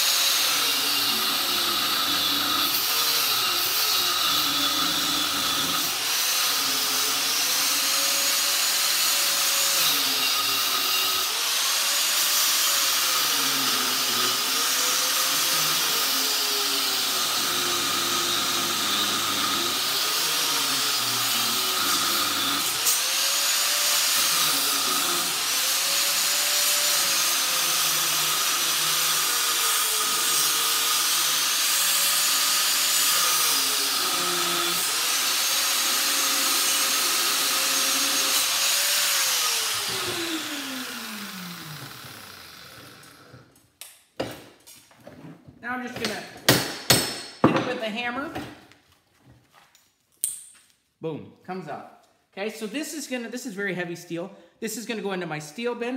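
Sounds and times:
electric grinder whining: 0.0 - 43.6
grinder cutting into steel: 0.0 - 43.6.

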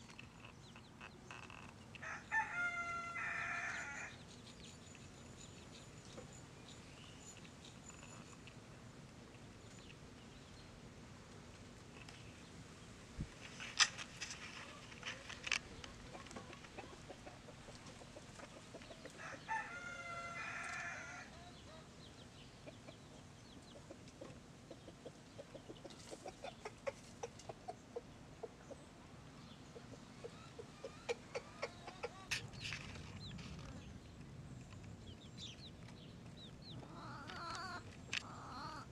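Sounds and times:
chicken drawn-out call: 1.3 - 4.2, 19.1 - 21.9, 36.8 - 38.9
chicken clucking: 14.6 - 19.7, 22.6 - 28.9, 29.7 - 33.9, 36.4 - 38.9.

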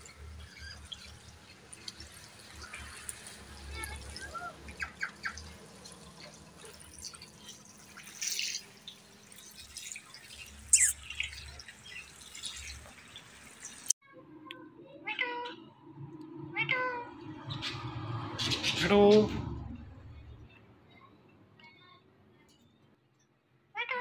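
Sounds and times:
parakeet squawking: 10.7 - 11.2.

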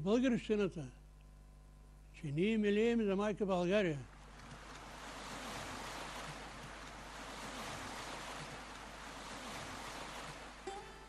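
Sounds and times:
sea waves washing ashore: 4.2 - 11.0.

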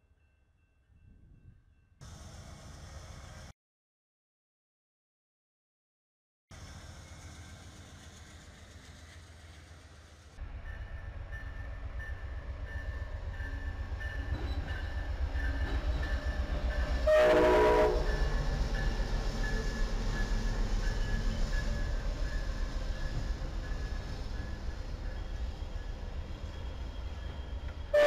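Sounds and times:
diesel train rumbling past: 0.9 - 3.5, 6.5 - 28.0
train horn blast: 17.0 - 18.5.

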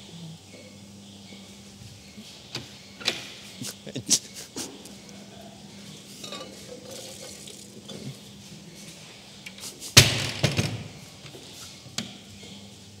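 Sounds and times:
glass clinks: 6.2 - 7.0.

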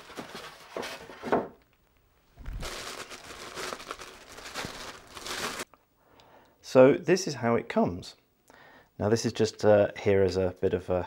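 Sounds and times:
plastic bag crinkling: 2.3 - 5.7.

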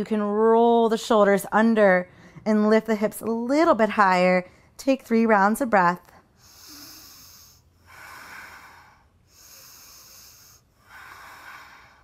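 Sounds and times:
woman breathing slowly: 6.2 - 12.0.

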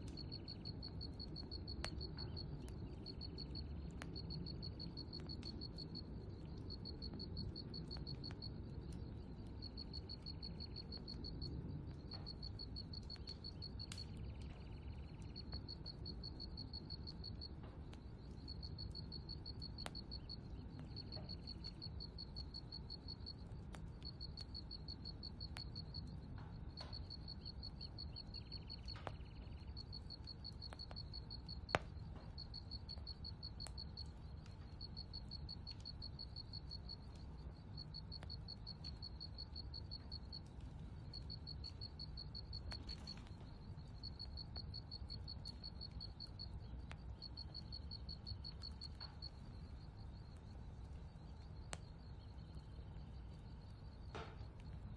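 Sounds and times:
insect chirping high and fast: 0.0 - 5.8, 12.3 - 17.5, 26.8 - 31.8, 32.4 - 54.0.

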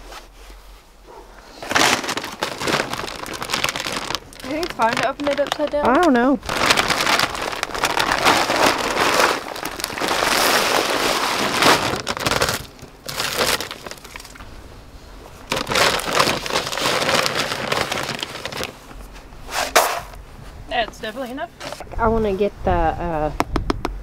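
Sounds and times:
plastic feed bag rustling: 1.5 - 14.4, 15.4 - 18.8.

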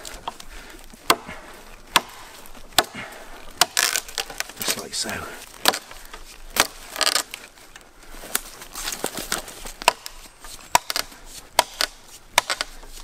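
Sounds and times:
axe chopping log: 1.0 - 7.4, 8.9 - 13.0.

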